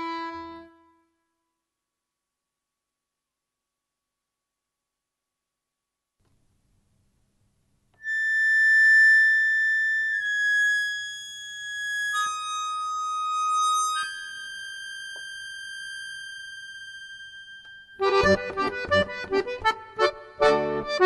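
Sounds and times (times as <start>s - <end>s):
reed instrument playing long notes: 8.0s - 21.0s.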